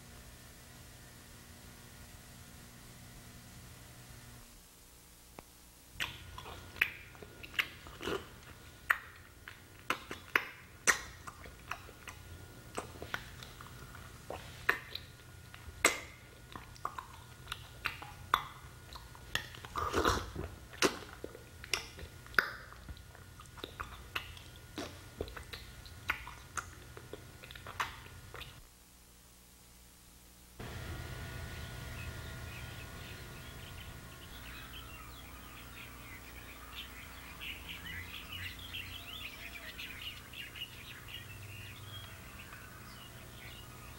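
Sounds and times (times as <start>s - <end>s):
steady low hum: 0.0s - 43.9s
wet squelching and clicking: 6.0s - 28.6s.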